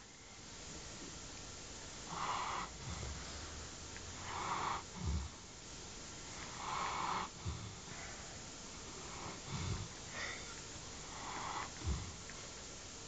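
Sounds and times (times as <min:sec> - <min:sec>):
wheezy breathing hiss: 0:02.0 - 0:13.0
dog snoring: 0:02.1 - 0:03.6, 0:04.2 - 0:05.4, 0:06.2 - 0:08.0, 0:08.9 - 0:10.4, 0:11.0 - 0:12.2.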